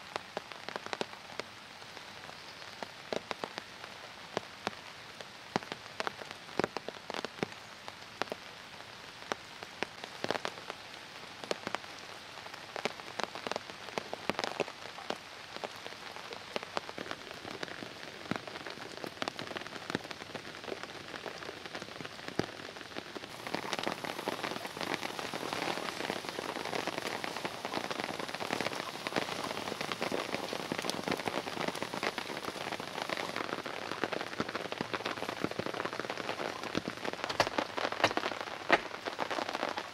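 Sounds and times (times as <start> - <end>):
heavy rain on a tarp: 0.0 - 39.9
sharp raindrop ticks: 23.2 - 39.9.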